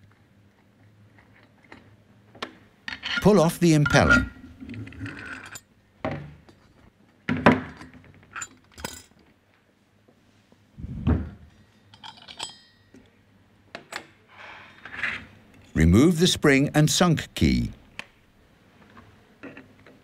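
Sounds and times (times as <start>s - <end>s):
metal clinks and knocks: 11.5s - 13.0s.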